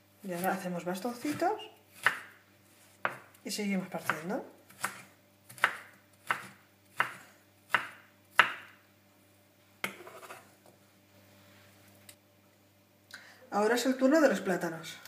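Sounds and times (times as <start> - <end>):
knife chopping on wooden board: 2.0 - 2.4, 3.0 - 3.3, 4.0 - 8.8.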